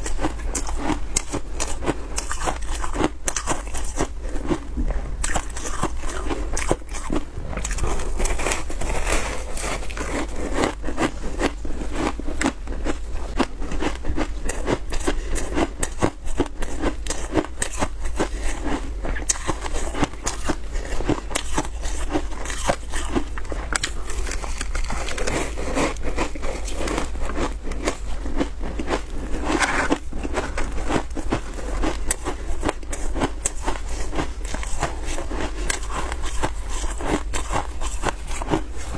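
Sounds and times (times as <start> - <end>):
chewing crunchy ice: 0.0 - 38.9.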